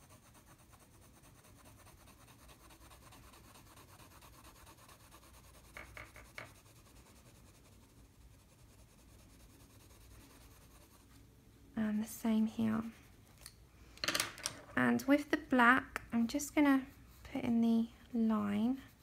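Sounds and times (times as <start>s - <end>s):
coloured pencil scratching paper: 0.0s - 11.2s.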